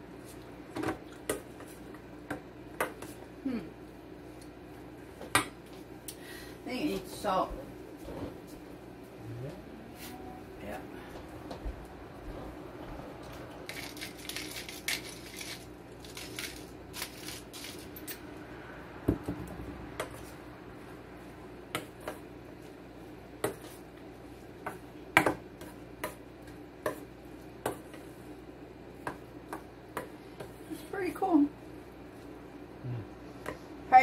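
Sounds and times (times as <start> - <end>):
salt grinder crunching: 13.7 - 17.9.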